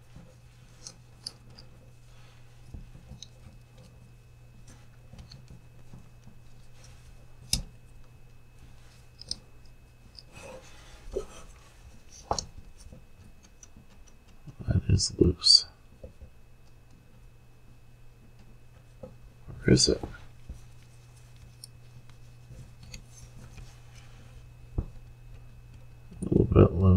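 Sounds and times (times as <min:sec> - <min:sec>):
small parts clicking and tapping: 0:00.7 - 0:01.9, 0:02.6 - 0:04.0, 0:09.0 - 0:10.3, 0:12.1 - 0:14.6.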